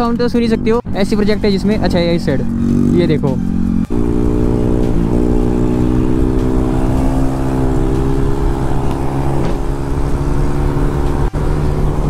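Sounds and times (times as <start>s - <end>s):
scooter engine running hard: 2.5s - 12.0s.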